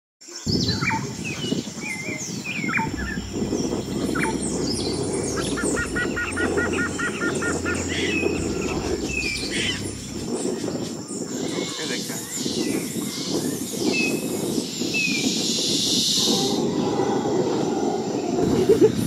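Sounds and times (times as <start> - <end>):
wild birds calling and chirping: 0.3 - 19.0
steady high whine: 2.7 - 12.5.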